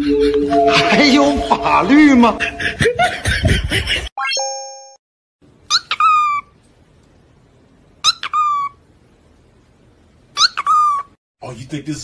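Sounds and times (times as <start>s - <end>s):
dog whining: 10.4s - 11.2s.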